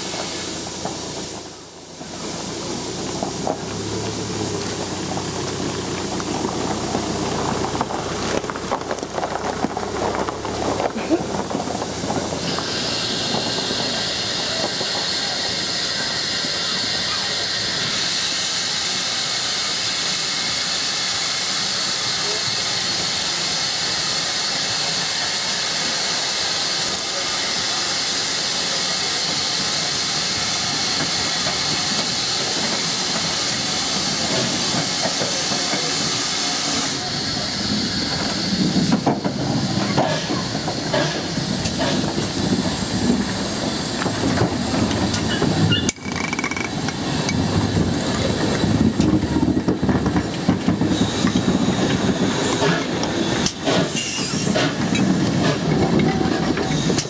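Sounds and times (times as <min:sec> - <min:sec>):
locomotive steam hissing: 0:00.0 - 0:57.0
train running gear rumbling and clicking: 0:00.0 - 0:57.0.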